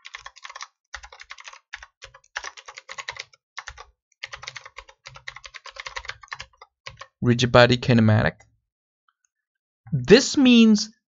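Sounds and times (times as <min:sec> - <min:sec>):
computer keyboard typing: 0:00.0 - 0:07.2.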